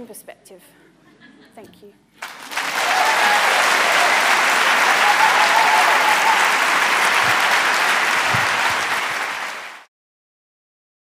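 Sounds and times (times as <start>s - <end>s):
audience applauding: 2.2s - 9.9s.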